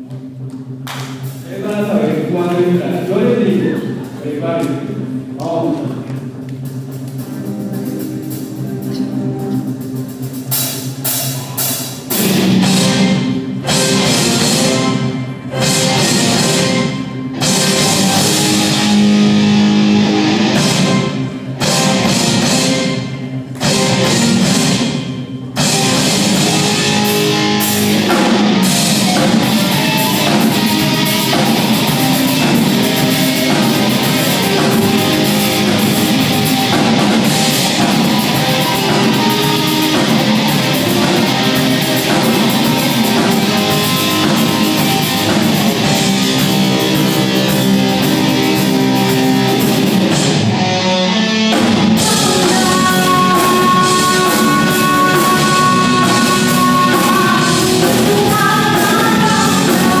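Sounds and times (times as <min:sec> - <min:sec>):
bass guitar: 0:00.0 - 1:00.0
drum kit: 0:00.0 - 1:00.0
electric guitars: 0:00.0 - 1:00.0
keyboard: 0:00.0 - 1:00.0
woman singing: 0:52.0 - 1:00.0.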